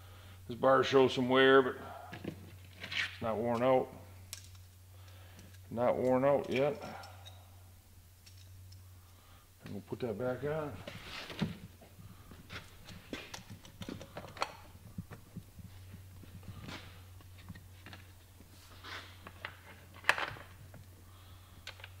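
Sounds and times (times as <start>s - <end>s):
steady low hum: 0.0s - 22.0s
saw chain clicks and knocks: 4.3s - 7.4s, 8.2s - 8.8s.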